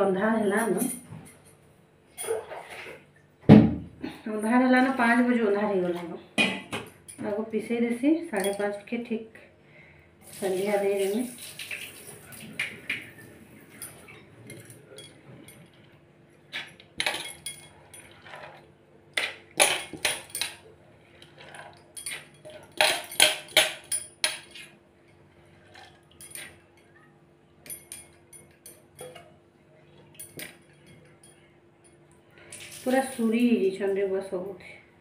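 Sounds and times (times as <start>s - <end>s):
metal bowls clinking: 12.6s - 18.6s, 19.2s - 27.0s, 27.6s - 32.1s.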